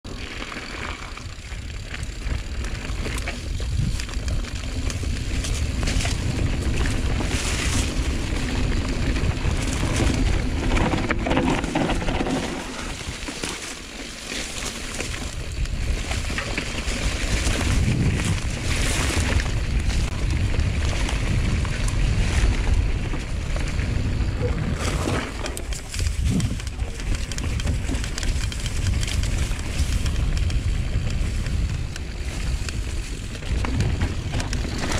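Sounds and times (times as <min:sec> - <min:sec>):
bike rattling over bumps: 0:00.0 - 0:34.9
bike tyre noise: 0:00.0 - 0:34.9
wind rumble on microphone: 0:00.0 - 0:34.9.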